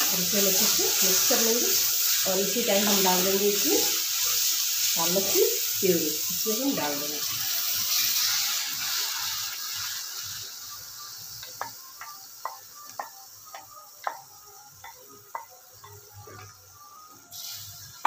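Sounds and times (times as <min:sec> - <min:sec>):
puree sizzling in oil: 0:00.0 - 0:18.0.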